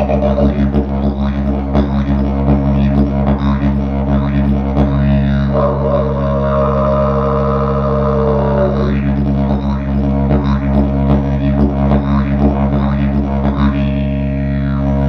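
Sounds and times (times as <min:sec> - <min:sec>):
higher held tone: 0:00.0 - 0:00.9, 0:05.5 - 0:09.0
didgeridoo drone: 0:00.0 - 0:15.0.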